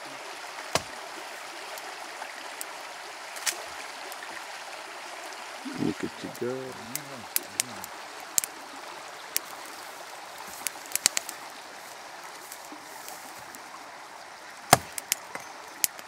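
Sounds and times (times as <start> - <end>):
campfire crackling and popping: 0.6 - 4.5, 5.6 - 13.8, 14.5 - 16.0
hatchet striking wood: 0.7 - 0.9, 14.7 - 15.5
steady rushing hiss: 5.6 - 16.0.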